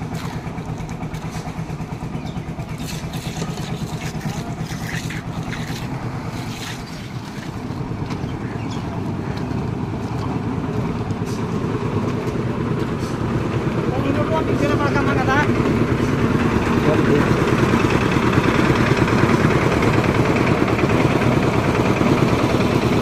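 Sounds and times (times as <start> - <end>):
concrete mixer engine running: 0.0 - 23.0.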